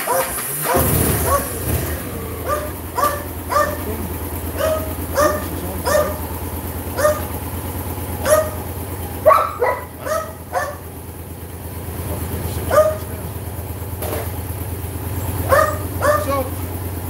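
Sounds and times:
dog barking: 0.0s - 1.6s, 2.4s - 7.4s, 8.2s - 10.9s, 12.6s - 13.1s, 15.4s - 16.5s
motorcycle engine idling: 0.0s - 17.0s.

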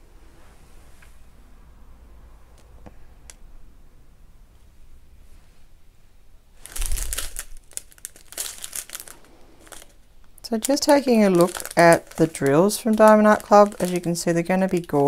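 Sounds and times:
plastic bag crinkling: 6.6s - 15.0s.

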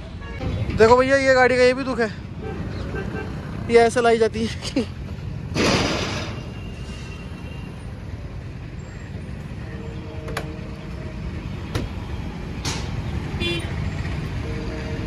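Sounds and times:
motorcycles passing: 0.0s - 5.6s
road traffic rumble: 0.0s - 15.0s.

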